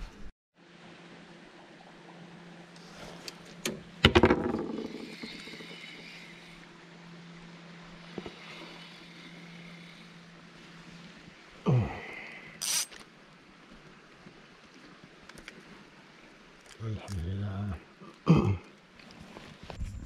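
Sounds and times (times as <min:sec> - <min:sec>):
outboard motor humming: 0:00.6 - 0:13.5
fishing rod and reel rattling: 0:02.8 - 0:06.7, 0:08.0 - 0:10.2, 0:12.6 - 0:13.1.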